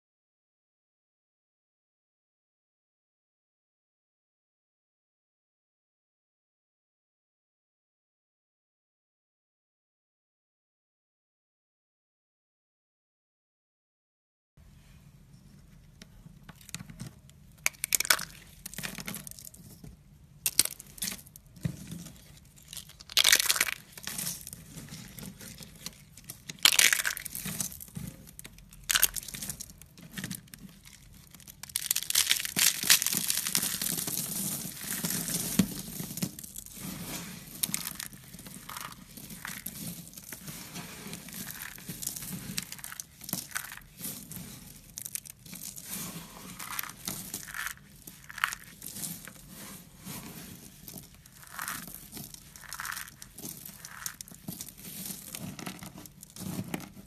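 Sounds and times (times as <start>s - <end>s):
dried clay snapping and crunching: 16.5s - 19.8s, 20.4s - 57.0s.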